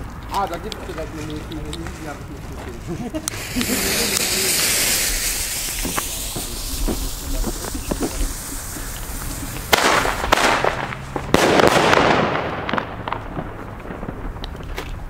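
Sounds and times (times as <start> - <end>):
firecrackers banging: 0.0 - 15.0
hiss: 3.1 - 11.1
small pops: 3.2 - 11.0.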